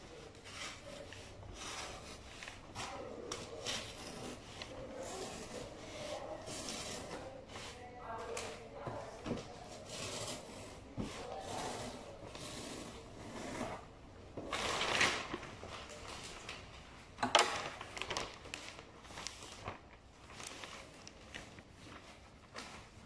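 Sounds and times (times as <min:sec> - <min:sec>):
wrapping paper rustling: 0:00.0 - 0:10.5, 0:14.4 - 0:23.0
sharp paper crackle: 0:14.5 - 0:16.8, 0:17.4 - 0:23.0.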